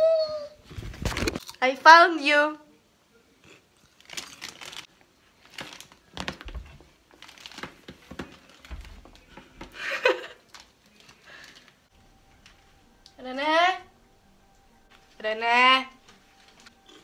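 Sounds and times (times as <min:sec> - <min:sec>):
plastic packet crinkling: 0:03.8 - 0:09.3, 0:10.0 - 0:11.8.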